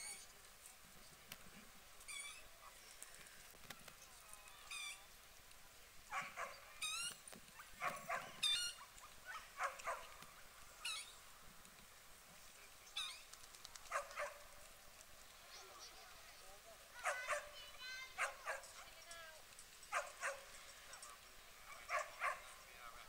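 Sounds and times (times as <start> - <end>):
birds chirping: 6.1 - 11.4, 12.3 - 23.0.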